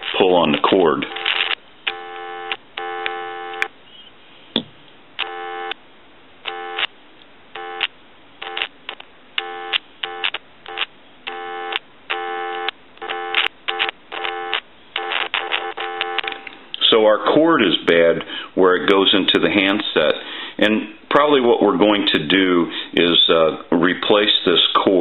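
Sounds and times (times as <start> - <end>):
telephone dial tone: 1.1 - 3.7, 5.2 - 5.8, 6.4 - 6.9, 7.6 - 16.5.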